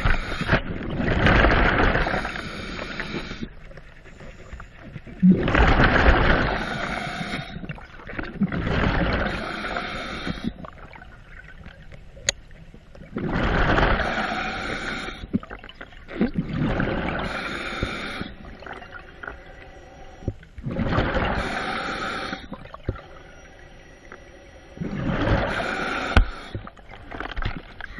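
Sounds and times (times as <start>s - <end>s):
diver breathing underwater: 0.0s - 0.7s, 1.4s - 8.1s, 8.8s - 10.8s, 13.2s - 15.5s, 16.4s - 27.0s.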